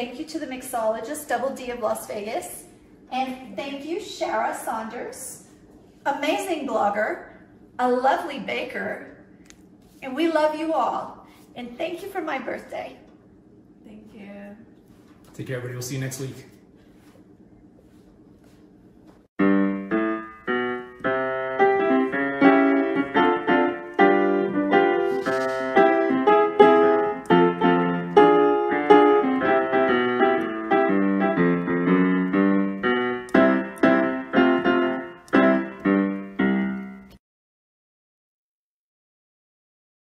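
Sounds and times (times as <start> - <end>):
solo piano notes: 19.4 - 37.2.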